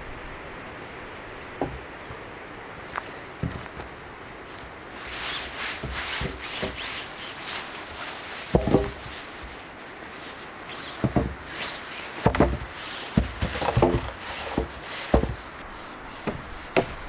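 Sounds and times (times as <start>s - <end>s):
nylon fabric rustling: 3.3s - 17.0s
sharp wooden knocks: 8.4s - 9.0s, 11.0s - 11.4s, 12.2s - 15.5s, 16.2s - 17.0s.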